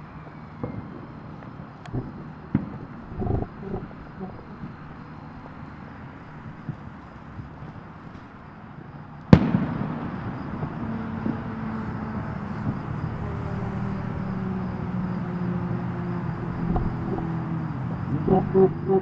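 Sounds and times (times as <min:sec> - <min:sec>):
steady low drone: 0:00.0 - 0:19.0
firework bang: 0:09.3 - 0:13.1.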